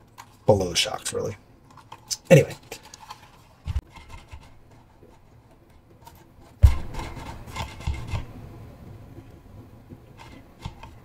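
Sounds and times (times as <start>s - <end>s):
toy truck thump: 6.6s - 8.3s
rubbing and small clicks: 9.2s - 11.0s.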